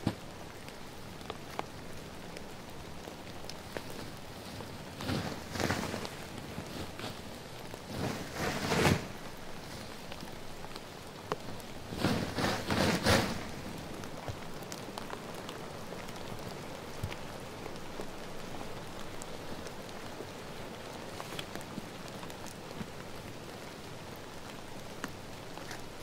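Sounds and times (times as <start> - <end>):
rain falling in forest: 0.0 - 26.0
loud rustling: 3.7 - 10.0, 11.8 - 14.1.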